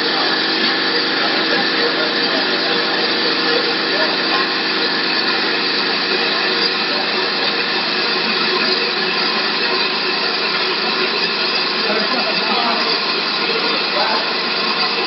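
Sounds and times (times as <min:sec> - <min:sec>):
lathe machine hum: 0:00.0 - 0:15.0.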